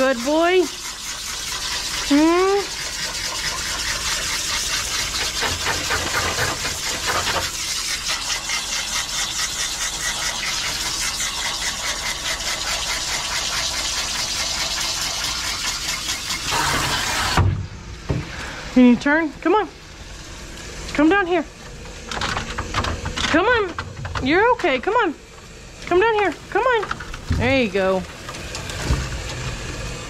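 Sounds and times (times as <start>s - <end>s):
hose water spraying on fur: 0.0s - 17.5s.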